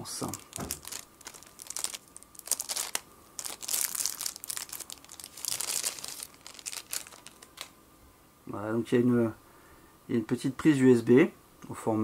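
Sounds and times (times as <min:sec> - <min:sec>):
plastic sleeve crinkling: 0:00.0 - 0:07.7.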